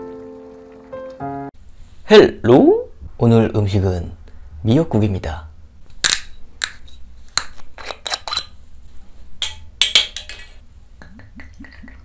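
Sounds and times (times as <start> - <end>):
screw cap twisting off: 7.4 - 8.5.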